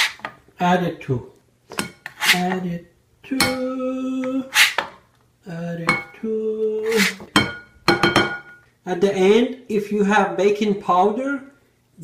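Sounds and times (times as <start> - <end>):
ceramic bowl ringing: 5.8 - 6.2, 7.4 - 8.6.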